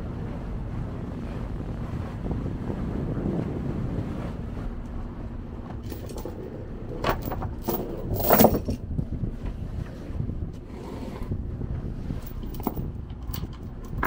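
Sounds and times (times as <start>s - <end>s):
boat rumble: 0.0s - 14.0s
gear clattering and scraping: 5.6s - 8.9s, 12.1s - 14.0s.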